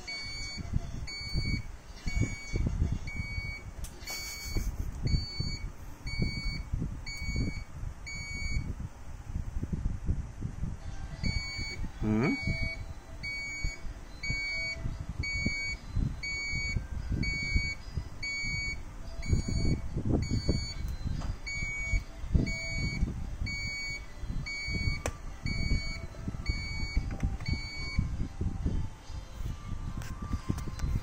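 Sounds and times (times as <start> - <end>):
low rumbling: 0.0 - 31.0
short high beeps: 0.1 - 8.6.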